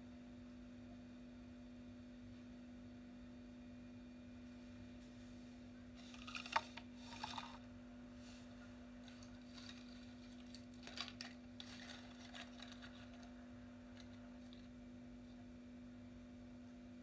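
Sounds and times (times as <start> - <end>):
steady low hum: 0.0 - 17.0
faint clicks and rustles: 8.4 - 14.8.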